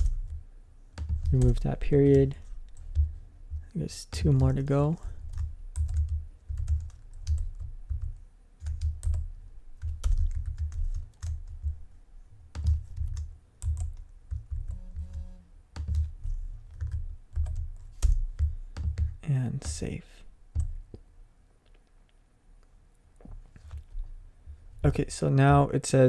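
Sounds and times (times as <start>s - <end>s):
keyboard typing: 0.0s - 11.8s, 12.5s - 20.8s.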